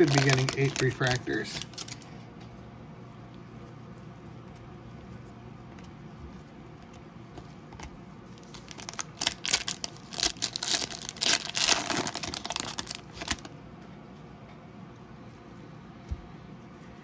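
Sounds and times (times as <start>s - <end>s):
foil wrapper crinkling and tearing: 0.0s - 2.1s, 8.4s - 13.5s.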